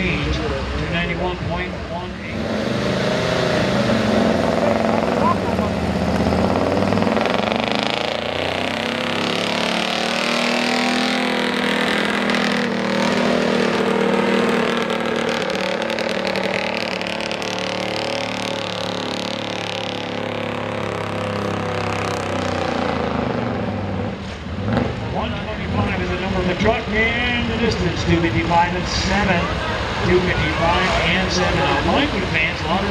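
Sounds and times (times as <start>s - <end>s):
pickup truck engine under load: 2.5s - 22.0s.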